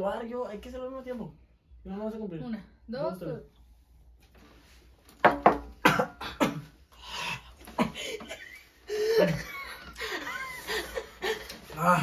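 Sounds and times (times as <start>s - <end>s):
people coughing and gasping: 5.8s - 6.8s.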